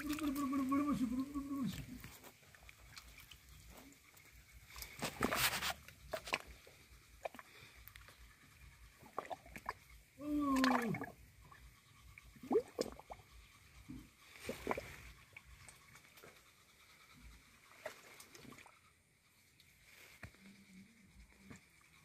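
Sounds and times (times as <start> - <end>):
voiced call with falling pitch: 0.0 - 2.3
mud squelching and sloshing: 0.0 - 8.0, 8.6 - 11.7, 14.3 - 16.0.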